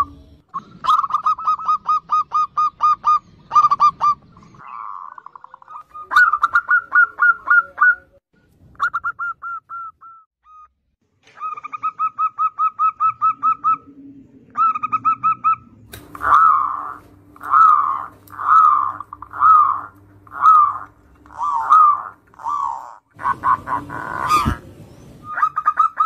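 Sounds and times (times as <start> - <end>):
dove cooing: 0.6 - 8.2, 11.4 - 26.0.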